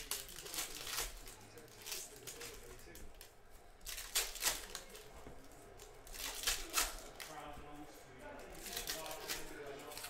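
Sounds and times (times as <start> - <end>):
cards rustling: 0.0 - 7.5.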